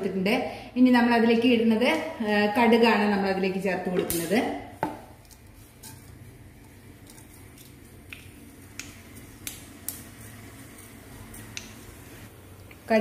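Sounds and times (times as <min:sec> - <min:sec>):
mustard seeds popping in oil: 0:03.9 - 0:12.0.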